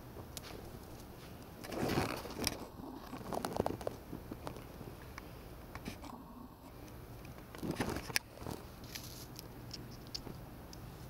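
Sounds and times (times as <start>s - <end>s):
dry pine needles rustling underfoot: 0.4s - 5.0s, 7.5s - 9.4s.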